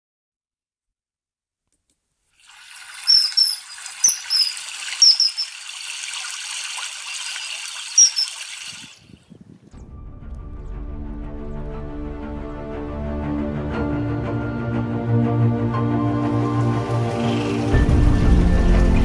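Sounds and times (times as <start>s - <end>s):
running water hissing: 2.4s - 9.2s, 16.3s - 18.4s
high-pitched bird whistles: 2.9s - 5.6s, 7.4s - 8.6s.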